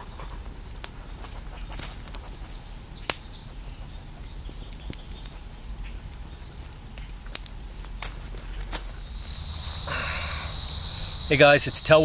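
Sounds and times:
campfire crackling: 0:00.0 - 0:12.0
fire popping: 0:00.0 - 0:12.0
low outdoor rumble: 0:00.0 - 0:12.0
faint bird chirps: 0:09.0 - 0:12.0.

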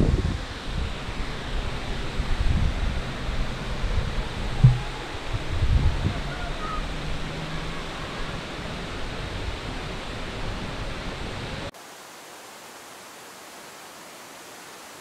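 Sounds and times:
waterfall roaring: 0:00.3 - 0:15.0
quiet even hiss: 0:03.0 - 0:15.0.

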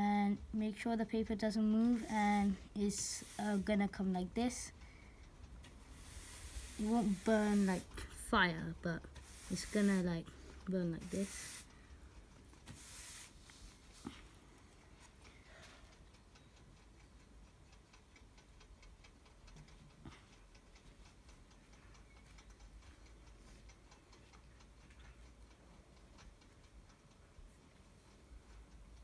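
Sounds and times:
faint rapid ticking: 0:00.0 - 0:29.0.

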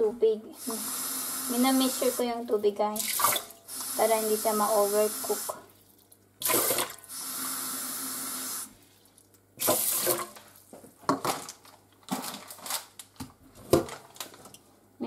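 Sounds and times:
water sloshing in pot: 0:03.0 - 0:03.7.

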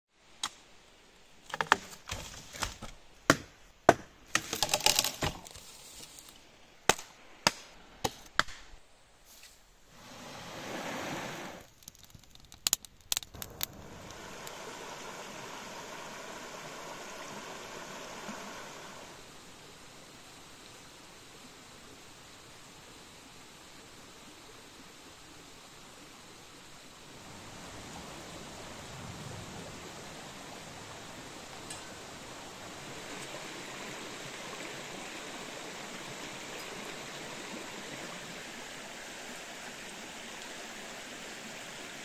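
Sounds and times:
river flowing over rocks: 0:13.4 - 0:42.0.

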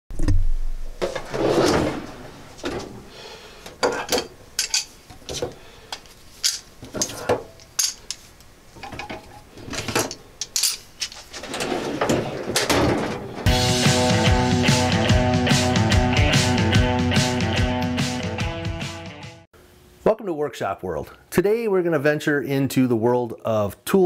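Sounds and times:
metal drawer pulled open: 0:01.0 - 0:03.0, 0:11.1 - 0:13.5
metal pliers clinking: 0:06.4 - 0:08.2, 0:10.4 - 0:11.2.

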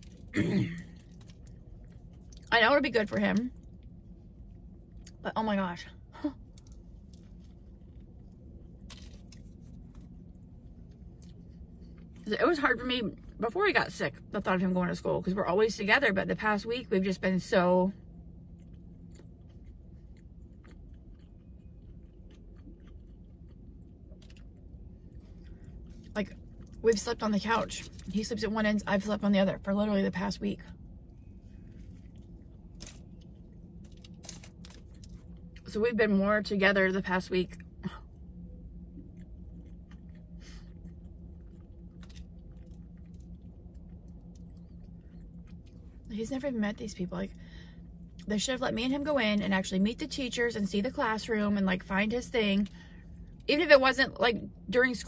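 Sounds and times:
person chewing: 0:00.0 - 0:02.5, 0:06.5 - 0:12.2, 0:18.6 - 0:26.8, 0:31.4 - 0:35.6, 0:38.9 - 0:46.0
steady low hum: 0:00.0 - 0:55.0.

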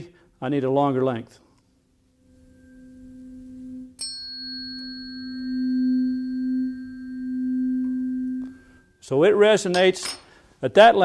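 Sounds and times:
tuning fork pure tone: 0:01.9 - 0:09.0.

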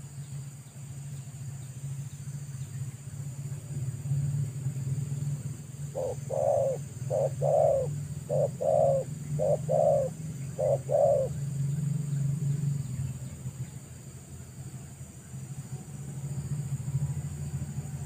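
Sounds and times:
steady low hum: 0:00.0 - 0:18.0
dove cooing: 0:05.9 - 0:11.4.

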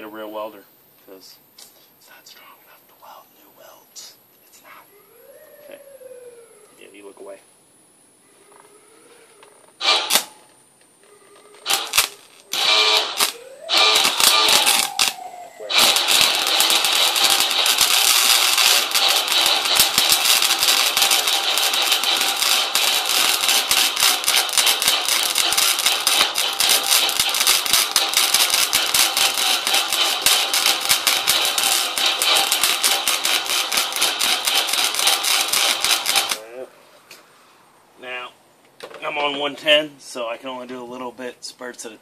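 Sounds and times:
welder arc crackling: 0:08.4 - 0:36.7.

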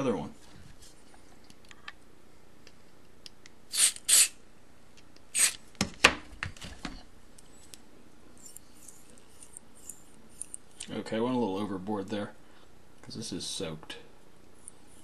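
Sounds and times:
aerosol spray hissing: 0:03.7 - 0:04.3.

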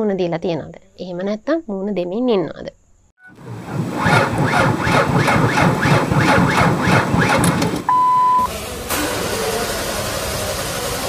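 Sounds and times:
car starter motor cranking: 0:03.3 - 0:11.0
steady beep: 0:07.9 - 0:08.5.

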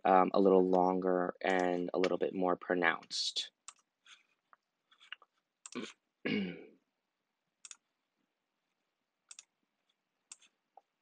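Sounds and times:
person clearing throat: 0:05.8 - 0:06.7
computer mouse clicking: 0:07.6 - 0:07.8, 0:09.3 - 0:09.5, 0:10.3 - 0:10.9.

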